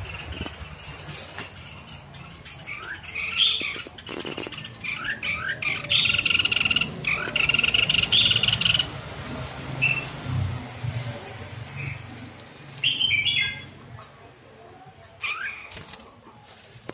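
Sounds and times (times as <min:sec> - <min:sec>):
bird chirps: 0:00.0 - 0:09.0, 0:12.8 - 0:13.8
bird buzzy rattling call: 0:03.4 - 0:04.9.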